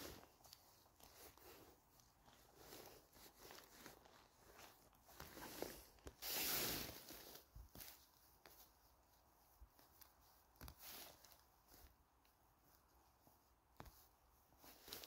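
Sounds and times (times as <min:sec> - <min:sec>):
tearing rustle: 0:00.0 - 0:11.9
rustling of mushrooms being picked: 0:00.0 - 0:15.0.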